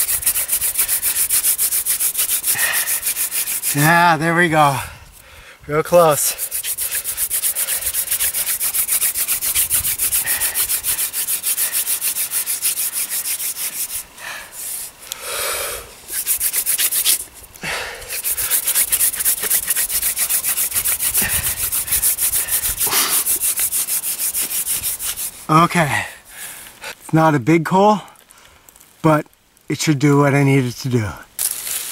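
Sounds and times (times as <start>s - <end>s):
wooden spindle grinding into board: 0.0s - 4.2s, 6.0s - 14.0s, 16.1s - 17.3s, 18.1s - 25.6s.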